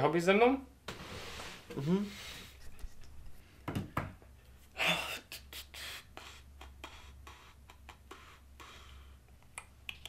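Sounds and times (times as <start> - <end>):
person breathy exhale: 4.8 - 9.2.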